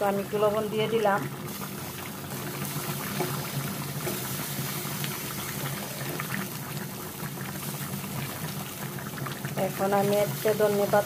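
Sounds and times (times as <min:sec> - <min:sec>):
curry bubbling in a pot: 0:00.0 - 0:11.0
wooden spatula stirring: 0:01.9 - 0:06.5.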